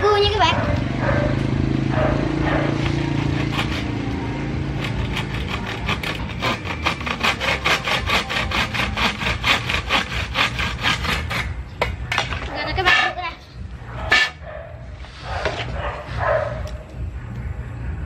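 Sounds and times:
hacksaw cutting bamboo: 0:02.8 - 0:11.6, 0:14.1 - 0:14.4.

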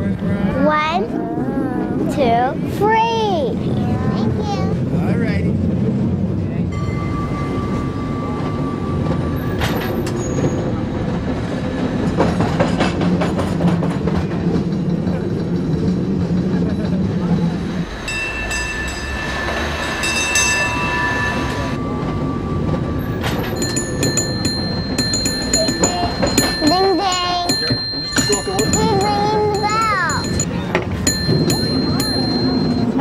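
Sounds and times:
cable car rattling rumble: 0:00.0 - 0:33.0
high metallic ringing: 0:17.8 - 0:33.0.

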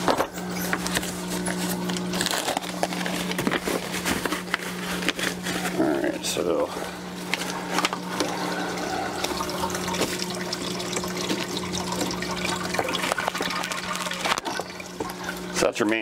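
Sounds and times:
pump humming: 0:00.0 - 0:16.0
water splashing and trickling: 0:07.5 - 0:15.7.

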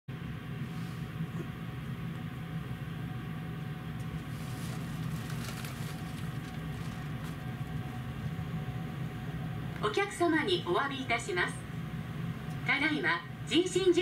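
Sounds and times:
train equipment humming: 0:00.1 - 0:14.0
faint clicks and rustles: 0:04.0 - 0:07.8.

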